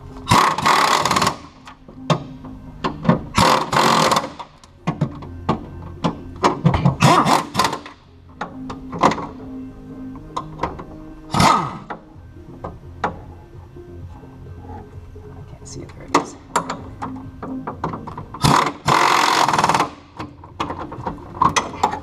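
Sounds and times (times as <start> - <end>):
pneumatic impact wrench: 0.2 - 1.8, 3.3 - 4.6, 6.8 - 8.0, 11.3 - 12.0, 18.4 - 20.3
clicks and clanks of metal: 16.0 - 22.0.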